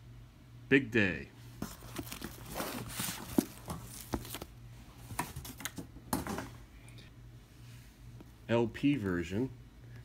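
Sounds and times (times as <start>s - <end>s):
plastic wrap crinkling: 1.6s - 4.5s.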